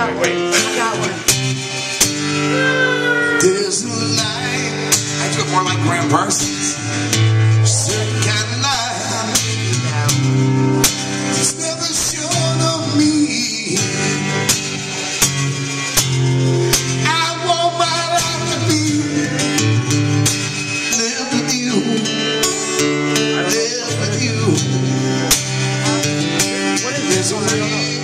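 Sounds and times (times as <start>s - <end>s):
acoustic guitar strumming: 0.0s - 28.0s
person singing: 2.3s - 6.8s, 7.6s - 10.3s, 20.6s - 28.0s.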